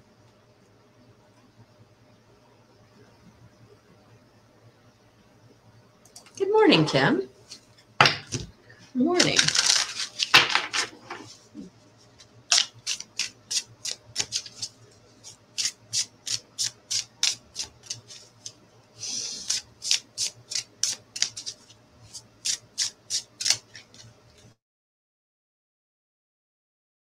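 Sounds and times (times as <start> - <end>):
card rustle: 9.1 - 24.5
cards being shuffled: 9.1 - 24.5.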